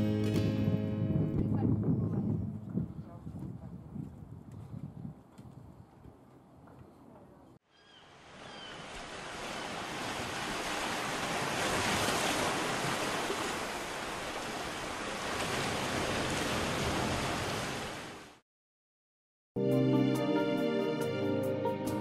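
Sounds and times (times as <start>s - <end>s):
wind: 0.0s - 18.4s
sea waves: 7.9s - 18.4s.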